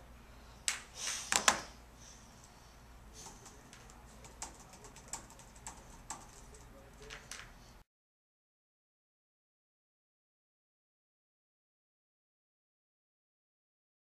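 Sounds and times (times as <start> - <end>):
laptop keyboard typing: 3.2 - 7.4.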